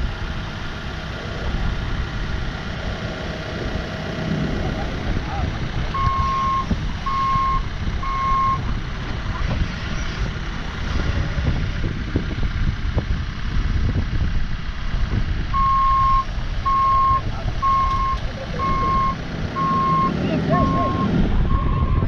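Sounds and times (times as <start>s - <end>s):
forklift engine running under load: 0.0s - 22.0s
reverse alarm beeping: 5.9s - 8.7s, 15.6s - 22.0s.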